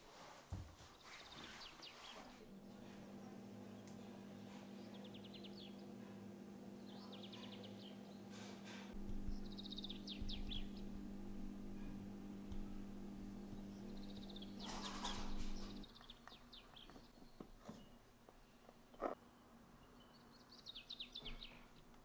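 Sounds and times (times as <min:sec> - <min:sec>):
steady low hum: 0:02.4 - 0:15.9
low rumbling thumps: 0:09.0 - 0:15.8
small bird chirping trills: 0:09.1 - 0:12.0, 0:13.0 - 0:18.7.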